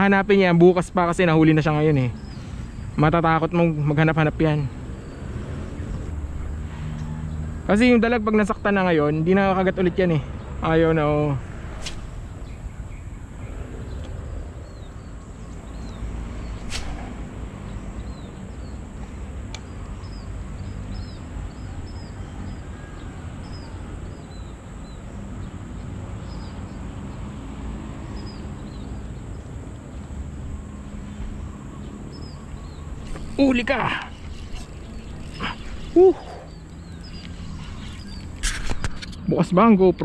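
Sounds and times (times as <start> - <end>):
small birds chirping: 0.0 - 40.0
sharp click: 11.8 - 12.1, 16.6 - 17.2.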